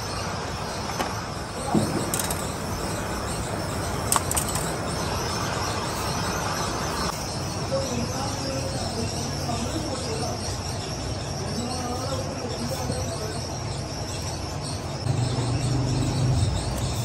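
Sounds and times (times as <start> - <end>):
wire leads clicking: 1.7 - 2.9, 4.0 - 4.8.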